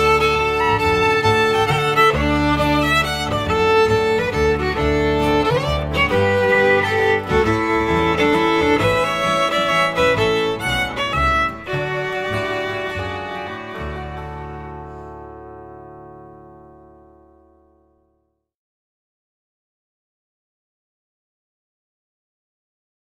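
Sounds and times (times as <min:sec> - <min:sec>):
fiddle playing a tune: 0:00.0 - 0:17.3
lower accompaniment: 0:00.0 - 0:17.6.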